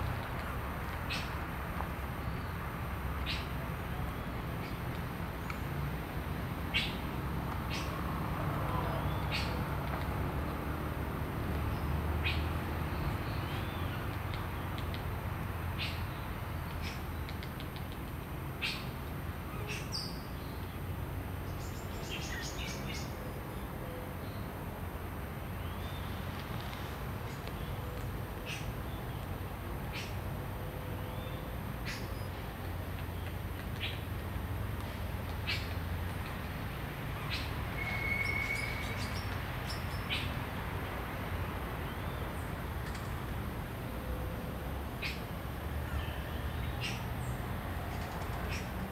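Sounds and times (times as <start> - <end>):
high bird calls: 37.2 - 40.3.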